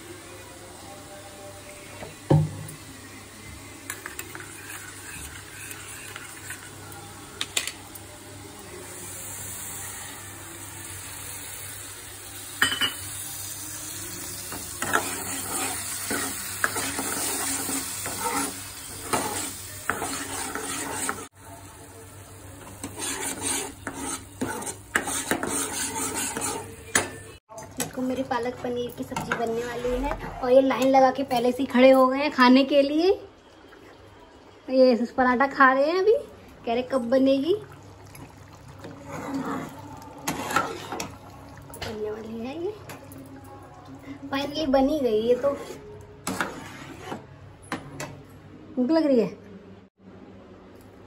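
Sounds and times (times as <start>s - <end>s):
metal spoon scraping a pan: 4.0s - 6.8s, 14.5s - 21.3s, 22.7s - 27.3s, 29.0s - 31.6s, 38.8s - 41.2s, 45.2s - 47.3s
paste sizzling in hot oil: 4.0s - 6.8s, 10.8s - 21.4s, 22.6s - 26.8s.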